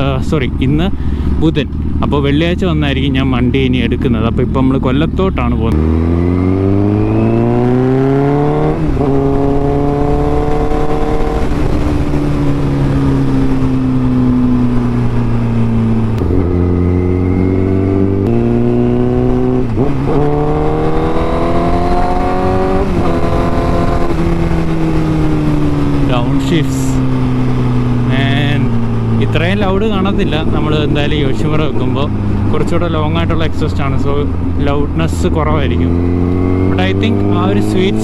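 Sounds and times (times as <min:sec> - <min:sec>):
motorcycle engine accelerating: 0:00.0 - 0:38.0.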